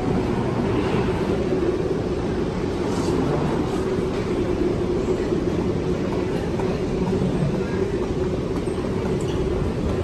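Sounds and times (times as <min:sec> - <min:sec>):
train and machinery rumble: 0:00.0 - 0:10.0.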